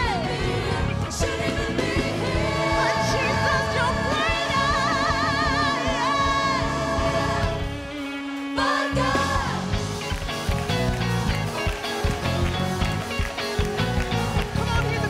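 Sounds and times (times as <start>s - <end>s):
gospel choir singing: 0.0s - 12.8s
band playing: 0.0s - 15.0s.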